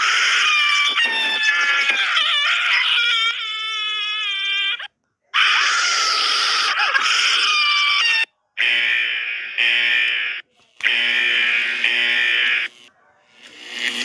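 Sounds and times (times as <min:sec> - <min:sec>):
high-pitched shrieking voice effect: 0:00.0 - 0:08.3.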